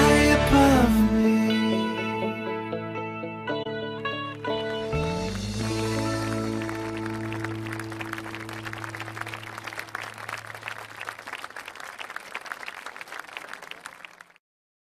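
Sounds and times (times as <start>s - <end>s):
audience applause: 4.4s - 14.4s.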